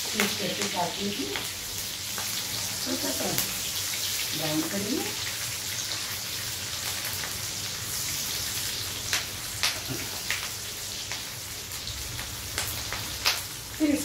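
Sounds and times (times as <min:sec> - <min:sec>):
onions sizzling in a wok: 0:00.0 - 0:14.0.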